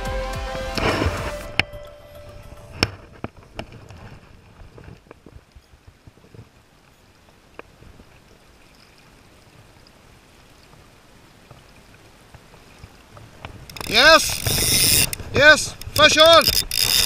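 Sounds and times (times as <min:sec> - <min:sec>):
river water flowing: 0:00.7 - 0:17.0
sharp clicks and knocks: 0:13.4 - 0:17.0.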